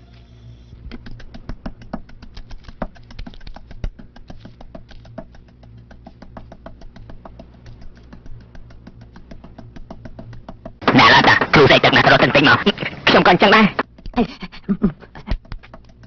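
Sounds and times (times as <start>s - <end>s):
steady low hum: 0.0s - 16.0s
wooden pestle pounding in mortar: 0.9s - 11.6s, 13.8s - 16.0s.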